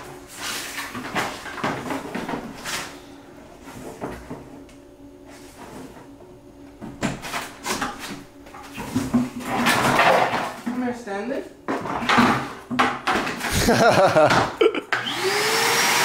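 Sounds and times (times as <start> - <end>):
vacuum hose knocking and rattling: 11.7 - 14.6.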